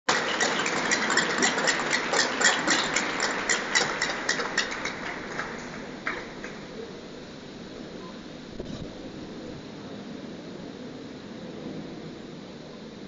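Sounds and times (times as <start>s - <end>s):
crowd noise: 0.0s - 11.4s
hands clapping: 0.1s - 6.9s.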